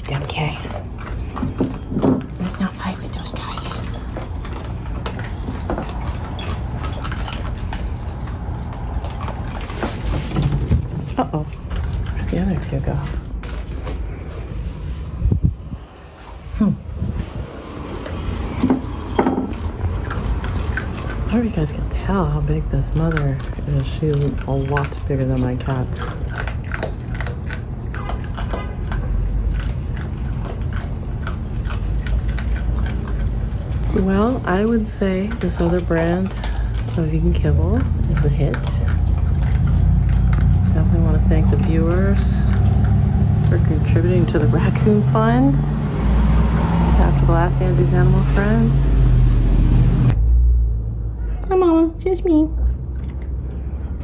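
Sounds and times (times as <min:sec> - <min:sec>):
animals crunching dry kibble: 0:00.0 - 0:49.6
low steady rumble: 0:00.0 - 0:54.0
low rumble: 0:45.2 - 0:51.3.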